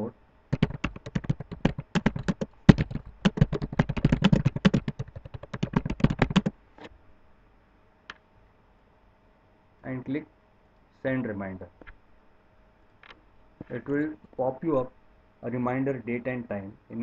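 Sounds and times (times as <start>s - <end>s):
computer keyboard typing: 0.5s - 6.5s.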